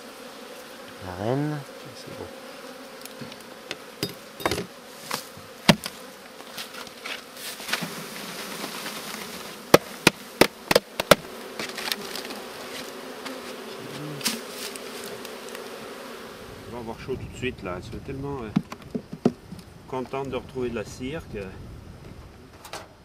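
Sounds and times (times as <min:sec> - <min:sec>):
bees buzzing: 0:00.0 - 0:22.5
cardboard package knocking on hive: 0:03.2 - 0:06.0, 0:09.0 - 0:15.6, 0:18.5 - 0:19.6.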